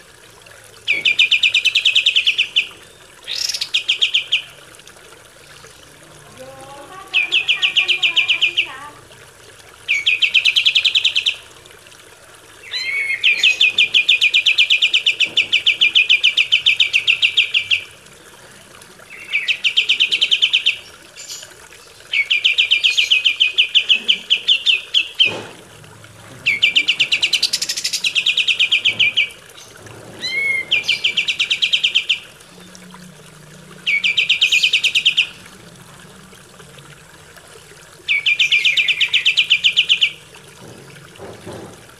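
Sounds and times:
songbird trilling: 0.9s - 4.6s, 7.1s - 8.7s, 12.6s - 17.9s, 19.1s - 21.5s, 26.4s - 32.7s, 33.8s - 35.4s, 38.1s - 40.2s.

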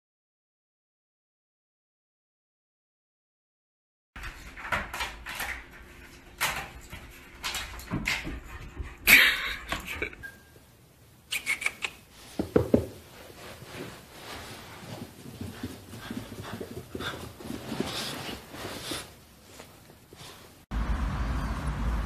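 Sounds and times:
puppy rattling plastic gate: 4.2s - 8.6s.

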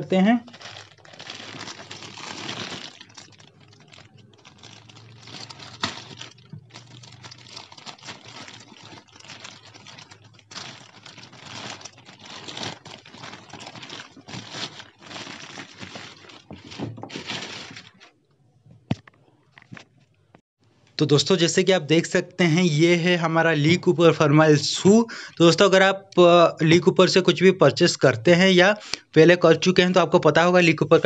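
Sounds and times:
plastic bag crinkling and tearing: 0.4s - 18.2s.

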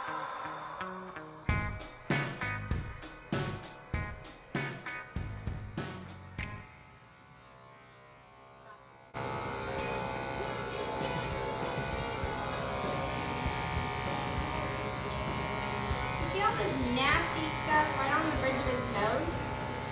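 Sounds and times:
electric clippers buzzing: 0.8s - 19.9s
drum beats of background music: 1.5s - 6.6s.

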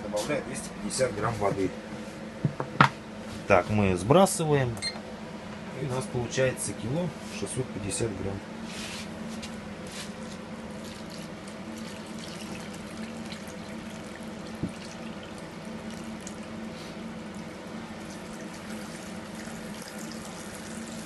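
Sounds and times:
water pouring into basin: 10.8s - 16.5s, 17.3s - 21.0s.

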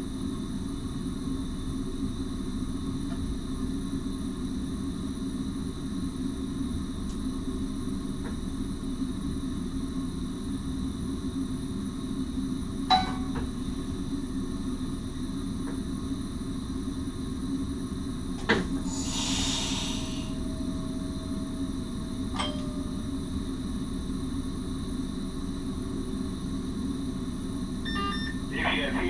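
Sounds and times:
train equipment hum: 0.0s - 29.0s
air hiss: 18.8s - 20.5s
faint steady tone: 19.5s - 25.9s.

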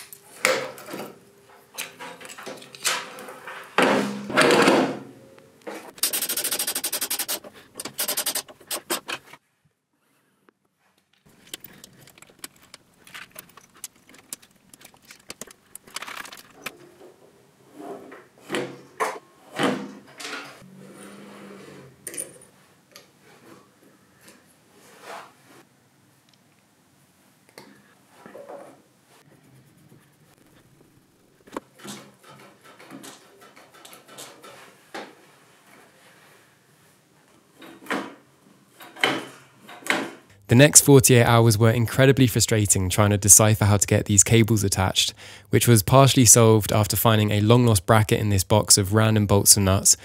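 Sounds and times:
fast clicks: 6.0s - 9.2s, 11.4s - 16.7s
metal parts clinking and scraping: 6.0s - 9.3s, 11.3s - 16.7s.

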